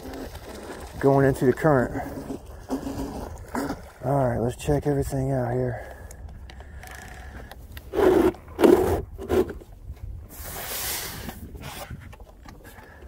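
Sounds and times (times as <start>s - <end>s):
hull scraping on dock: 0.0s - 3.9s, 7.9s - 9.7s.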